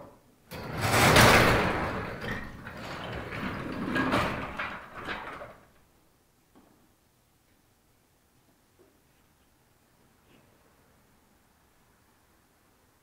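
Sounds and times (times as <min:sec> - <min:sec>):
garage door rattling open: 0:00.5 - 0:05.9.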